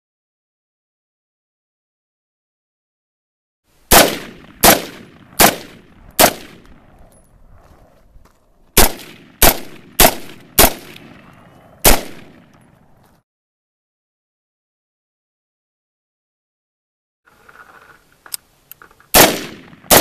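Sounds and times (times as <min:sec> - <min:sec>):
rifle gunshots: 0:03.9 - 0:06.9, 0:08.8 - 0:12.5, 0:19.1 - 0:20.0.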